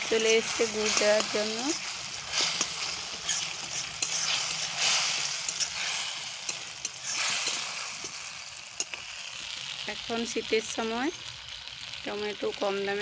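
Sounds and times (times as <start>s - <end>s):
metal spatula scraping a pan: 0.0s - 9.1s
chutney sizzling in a pan: 0.0s - 13.0s.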